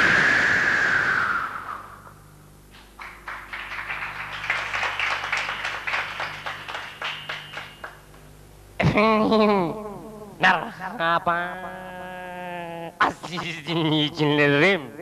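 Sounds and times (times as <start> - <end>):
low steady hum: 0.0 - 15.0
audience clapping: 2.7 - 8.3.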